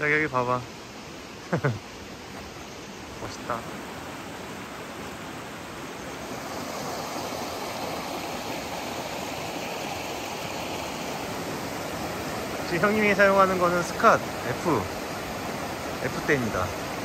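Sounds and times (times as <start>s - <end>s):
stream running over rocks: 0.0s - 17.0s.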